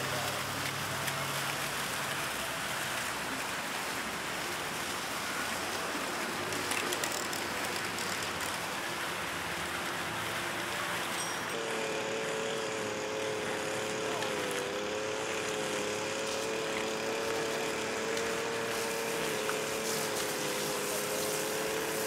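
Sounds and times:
fountain water splashing: 0.0s - 22.0s.

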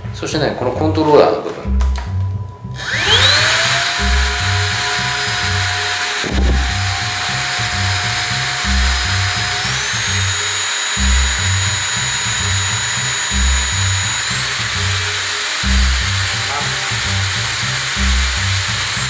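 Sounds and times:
background music with beat: 0.0s - 19.0s
vacuum cleaner motor whining: 2.8s - 19.0s.

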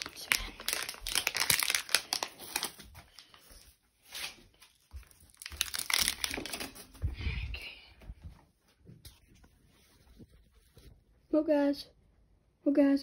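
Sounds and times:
plastic crinkling and rustling: 0.0s - 7.2s.

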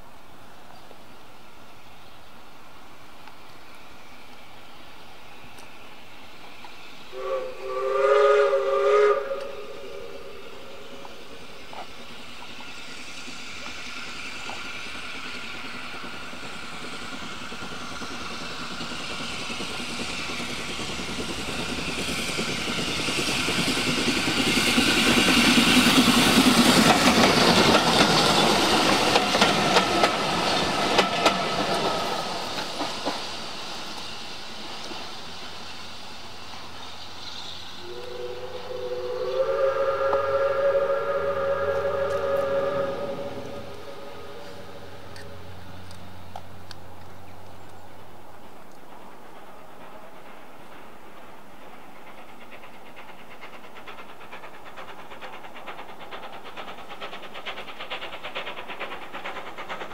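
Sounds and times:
train passing: 0.0s - 59.9s
steam locomotive whistle: 7.1s - 11.4s, 37.5s - 45.6s
train wheel clicks: 11.0s - 35.0s, 43.4s - 59.9s.

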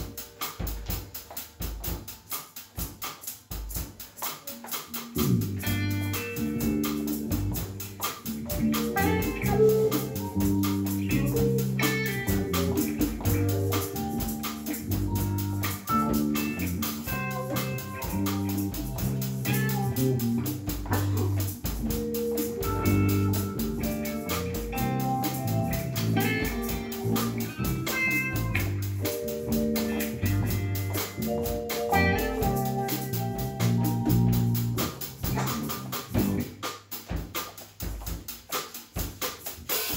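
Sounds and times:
hand drum: 3.6s - 36.4s
electric guitar: 4.4s - 36.7s
keyboard: 4.5s - 36.5s
electric bass: 4.9s - 36.7s.

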